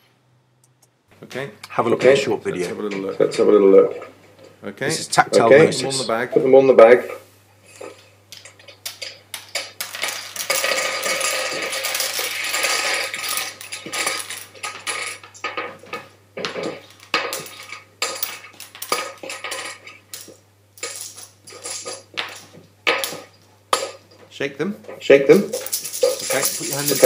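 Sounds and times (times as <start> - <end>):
game tiles clattering on wooden table: 8.3 - 24.0, 25.4 - 27.0.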